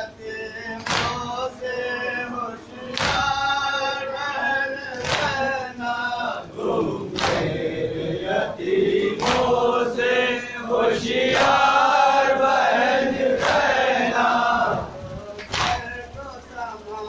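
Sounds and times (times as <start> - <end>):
men chanting together: 0.0 - 17.0
hands slapping chests: 0.8 - 1.2, 3.0 - 3.3, 5.0 - 5.4, 7.2 - 7.5, 9.2 - 9.5, 13.4 - 13.7, 15.4 - 15.8.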